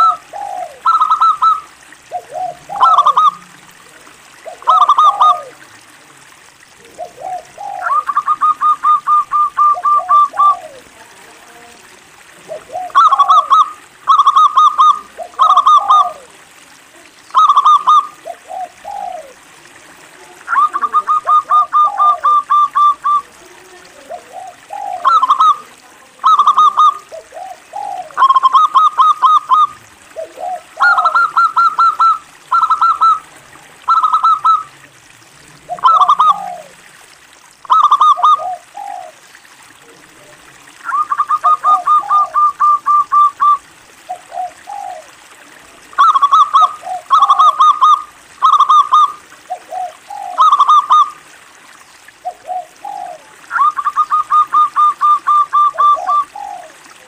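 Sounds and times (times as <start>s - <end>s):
dove singing staccato notes: 0.0s - 3.4s, 4.4s - 5.5s, 7.0s - 10.9s, 12.5s - 16.3s, 17.3s - 19.4s, 20.4s - 23.2s, 24.1s - 34.7s, 35.6s - 36.8s, 37.6s - 39.2s, 40.8s - 45.1s, 45.9s - 51.2s, 52.2s - 56.7s.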